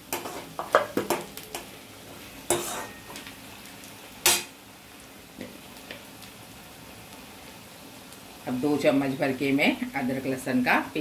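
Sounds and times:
onions sizzling in hot oil: 0:00.0 - 0:11.0
steel spoon scraping a pan: 0:00.1 - 0:00.7, 0:02.5 - 0:03.2.

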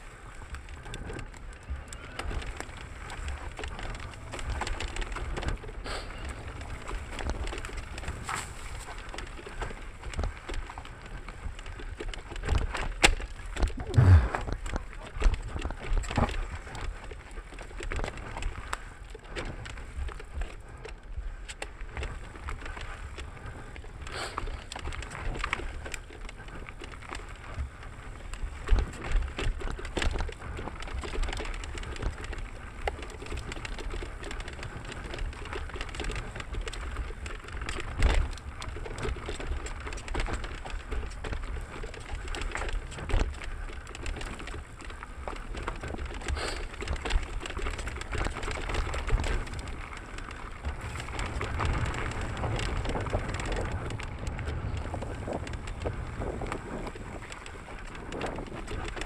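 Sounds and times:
bike rattling and knocking: 0:00.0 - 0:59.0
tyres crackling over dirt: 0:00.0 - 0:59.0
low rumble: 0:13.8 - 0:14.5.

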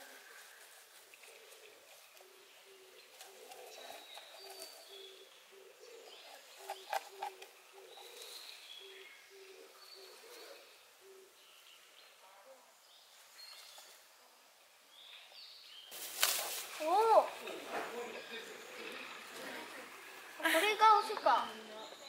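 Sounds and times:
low cooing bird call: 0:00.0 - 0:11.6
small birds chirping: 0:00.0 - 0:22.0.

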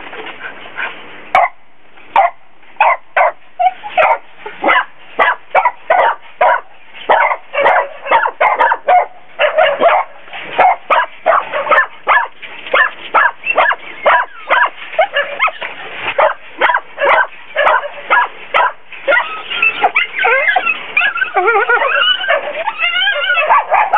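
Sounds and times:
dogs barking: 0:01.4 - 0:01.6, 0:02.2 - 0:23.9
dogs whining and yelping: 0:03.6 - 0:04.8, 0:06.0 - 0:23.9.

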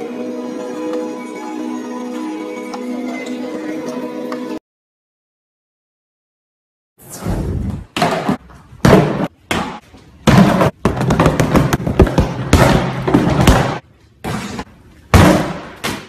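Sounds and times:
punch and kick impacts: 0:08.0 - 0:13.8, 0:15.1 - 0:16.0.

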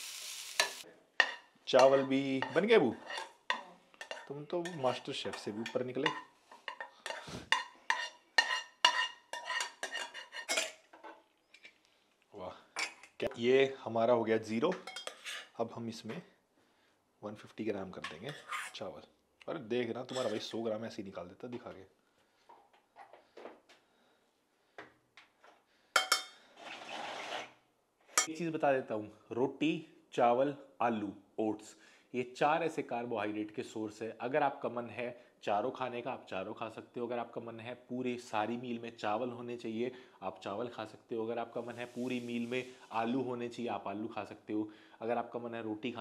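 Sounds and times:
spoon scraping frying pan: 0:00.0 - 0:11.8, 0:14.8 - 0:15.6, 0:18.0 - 0:18.8
spoon clinking on bowl: 0:14.8 - 0:15.3.

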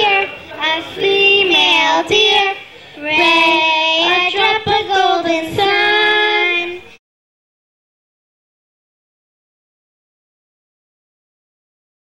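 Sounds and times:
girls singing into microphones: 0:00.0 - 0:07.0.

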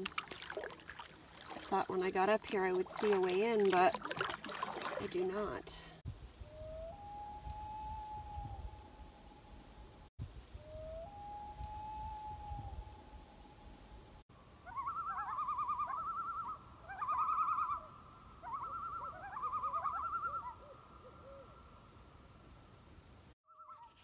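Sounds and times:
loon tremolo calls: 0:14.6 - 0:21.6.

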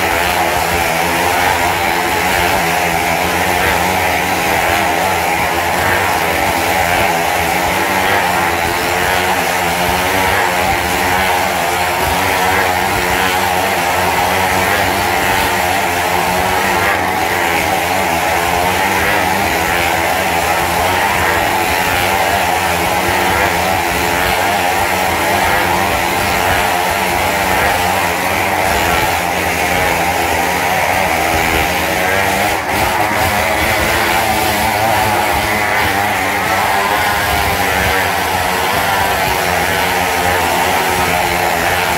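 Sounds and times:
motorcycle engines revving: 0:00.0 - 0:41.9.

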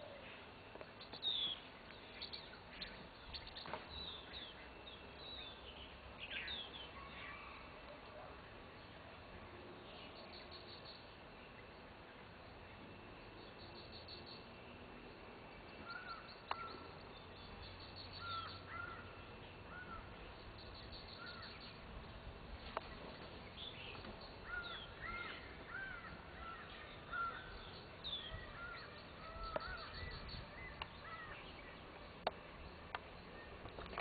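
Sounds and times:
birds chirping: 0:00.0 - 0:34.0.

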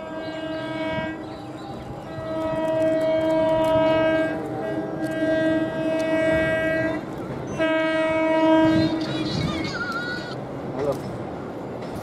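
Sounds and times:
train horn blasts: 0:00.0 - 0:09.3
train rumbling on track: 0:00.0 - 0:12.0.

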